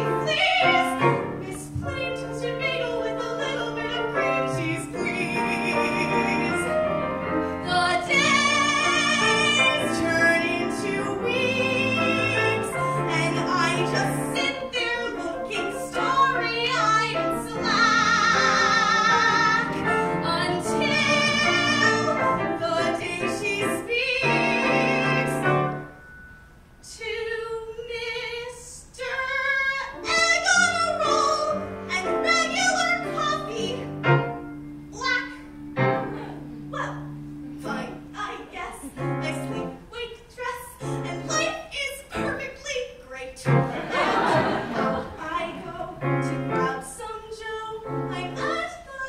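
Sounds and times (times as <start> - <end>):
instrumental accompaniment: 29.9 - 40.0.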